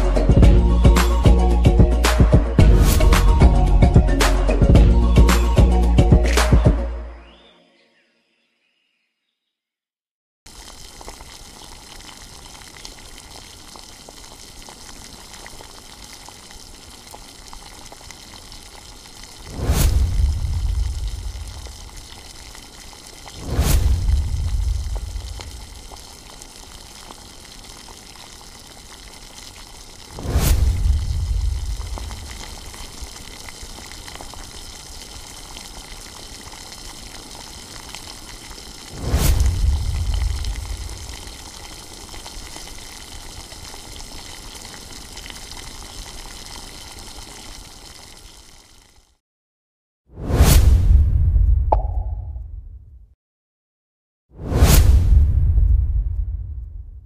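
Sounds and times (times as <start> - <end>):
curry bubbling in a pot: 10.5 - 49.2.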